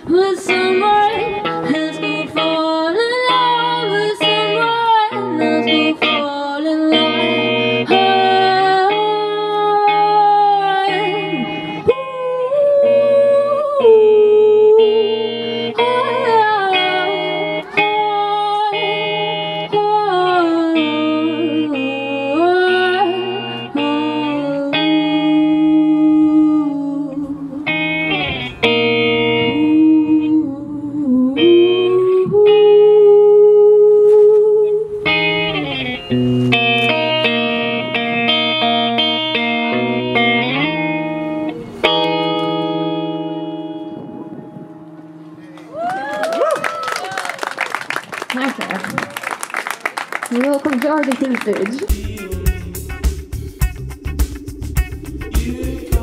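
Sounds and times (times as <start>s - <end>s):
strummed guitar chords: 0.0s - 33.3s, 34.5s - 45.6s, 51.8s - 56.0s
wordless melody line: 12.7s - 45.4s, 51.6s - 56.0s.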